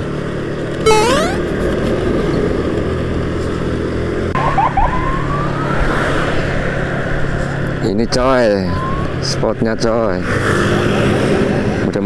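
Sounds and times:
road noise: 0:01.6 - 0:11.8.

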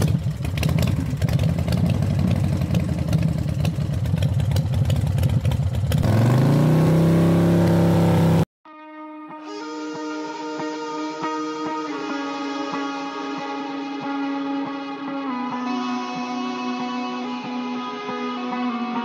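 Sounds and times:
motorcycle engine revving: 0:00.0 - 0:08.5.

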